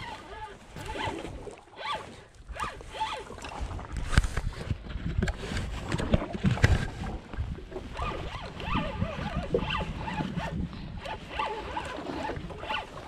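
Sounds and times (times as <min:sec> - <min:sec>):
fishing reel ratcheting whir: 0:00.0 - 0:03.4, 0:08.0 - 0:13.0.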